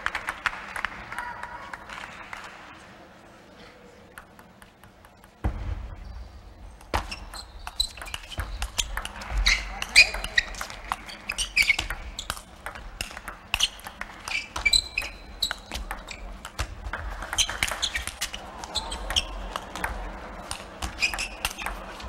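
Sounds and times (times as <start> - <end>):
shoes squeaking on floor: 7.0 - 12.5, 13.5 - 19.4, 20.6 - 22.0
table tennis ball clicking: 7.2 - 22.0.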